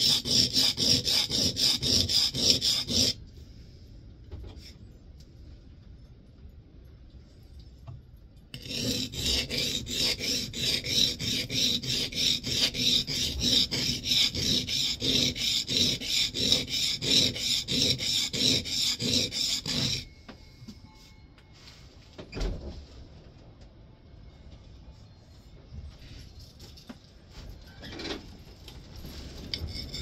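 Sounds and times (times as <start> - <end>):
plane iron scraping on sharpening stone: 0.0 - 3.2, 8.6 - 20.1, 29.5 - 30.0.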